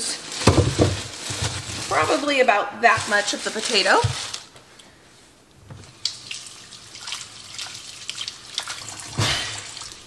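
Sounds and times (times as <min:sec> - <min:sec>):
potatoes rubbed under water: 0:00.0 - 0:04.5
faucet running: 0:06.0 - 0:10.0
water splashing into metal bowl: 0:06.0 - 0:10.0.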